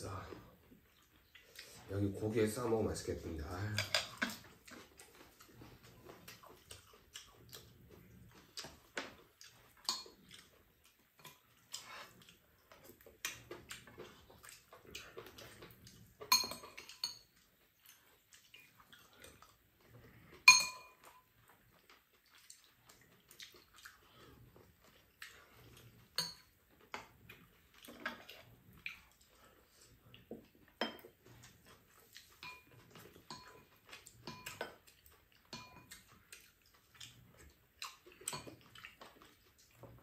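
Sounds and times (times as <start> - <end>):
sharp ringing clinks: 20.5 - 21.0.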